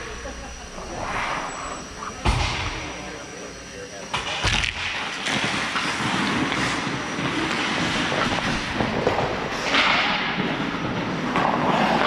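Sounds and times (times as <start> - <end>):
ice skates scraping on ice: 5.0 - 12.0.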